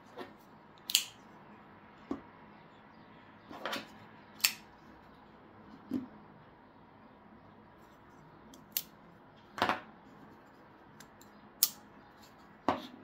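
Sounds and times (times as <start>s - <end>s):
pocket knife metallic clicks: 0.8s - 1.2s, 4.4s - 4.6s, 11.0s - 11.8s.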